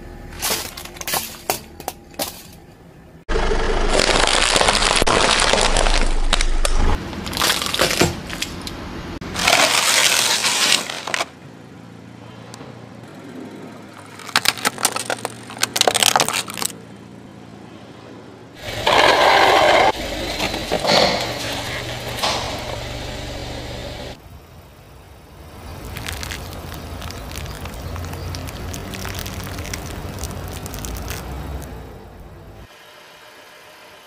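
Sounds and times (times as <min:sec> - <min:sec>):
tyres crushing plastic: 0:03.7 - 0:11.3, 0:14.1 - 0:16.8, 0:25.8 - 0:31.7.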